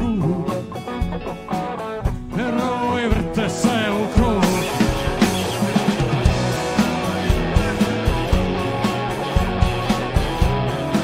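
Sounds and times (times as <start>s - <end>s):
man singing: 0.0s - 0.9s, 2.2s - 5.3s
live rock band playing: 0.0s - 11.0s.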